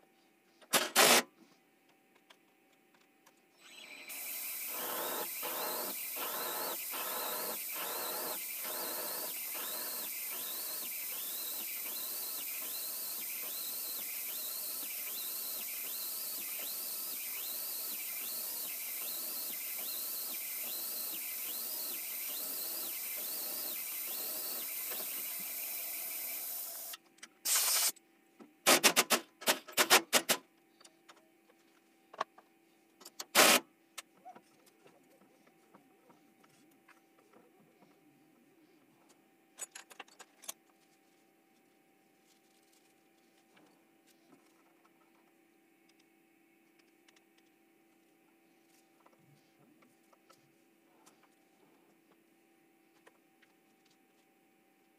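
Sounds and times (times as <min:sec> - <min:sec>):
milling machine drilling steel: 0:03.6 - 0:26.9
mist coolant spray hiss: 0:27.5 - 0:27.9.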